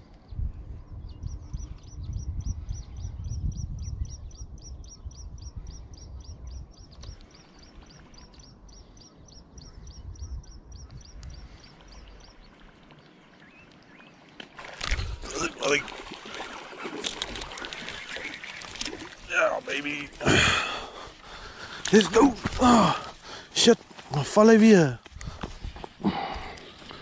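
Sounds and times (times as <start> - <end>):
wind rumble on microphone: 0.0 - 12.8, 14.8 - 15.3, 25.1 - 26.6.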